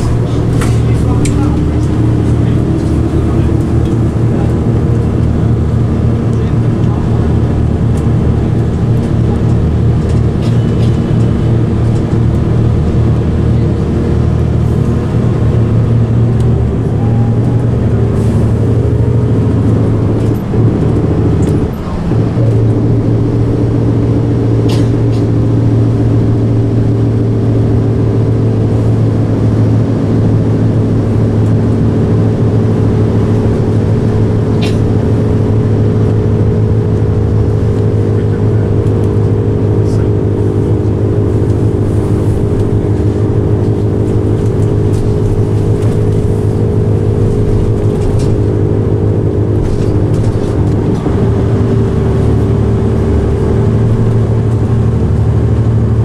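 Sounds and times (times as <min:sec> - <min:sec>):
bus body rattling: 0:00.0 - 0:56.0
bus diesel engine running: 0:00.0 - 0:56.0.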